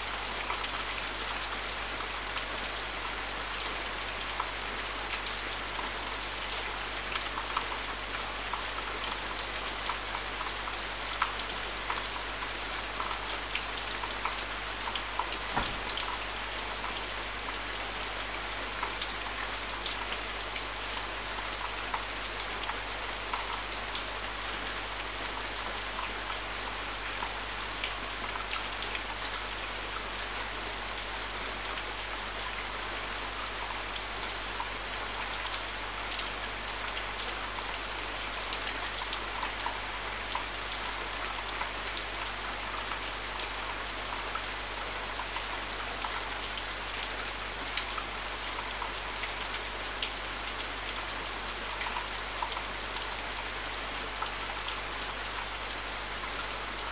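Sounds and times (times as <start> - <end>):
rain falling: 0.0 - 56.9.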